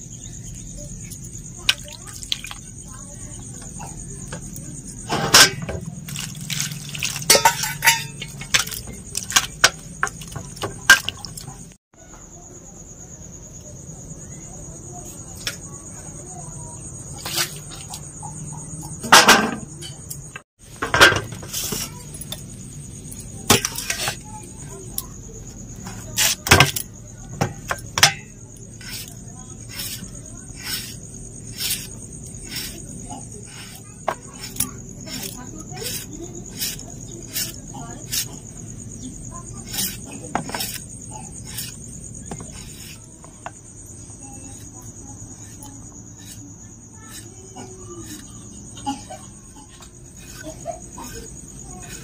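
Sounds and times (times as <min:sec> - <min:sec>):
high insect trill: 0:00.0 - 0:52.0
potato wedges dropping on steel plate: 0:05.1 - 0:11.3, 0:26.2 - 0:28.3
blade knocking on steel plate: 0:27.4 - 0:28.3.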